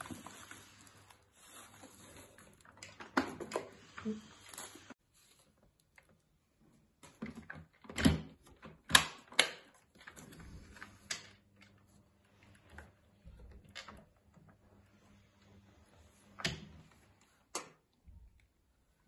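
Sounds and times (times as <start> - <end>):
packaging rustling: 0.0 - 2.9.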